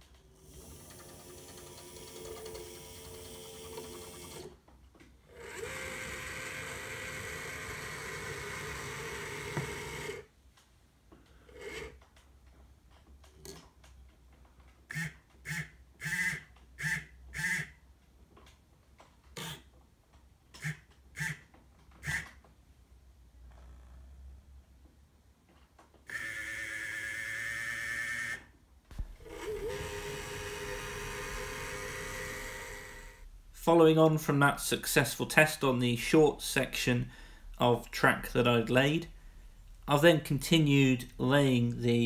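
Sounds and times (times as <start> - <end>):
model crane motor whirring: 0.4 - 4.5, 5.3 - 10.3, 26.1 - 28.4, 29.0 - 33.3
short whirring bursts: 26.1 - 33.4.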